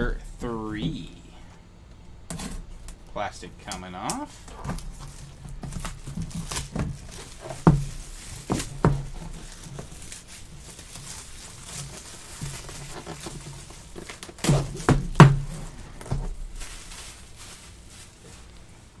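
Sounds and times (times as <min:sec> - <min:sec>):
plastic wrap crinkling and tearing: 0:04.3 - 0:19.0.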